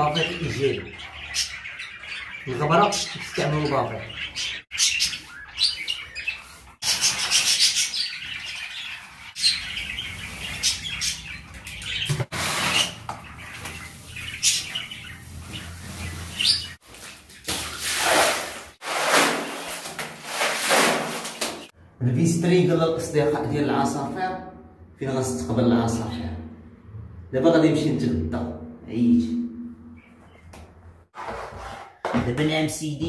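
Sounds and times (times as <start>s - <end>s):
small birds chirping: 0.0s - 18.0s, 29.9s - 30.6s
broom scraping on tiled floor: 12.3s - 13.1s, 14.0s - 16.8s, 17.6s - 21.7s, 31.1s - 32.0s.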